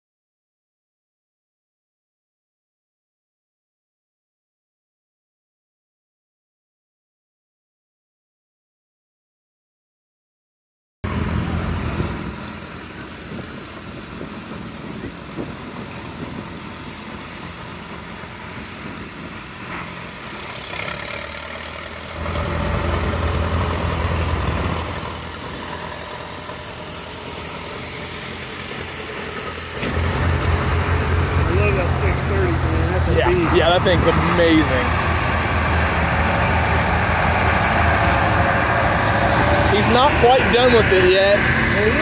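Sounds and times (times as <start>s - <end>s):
tractor engines running at low speed: 11.0s - 42.0s.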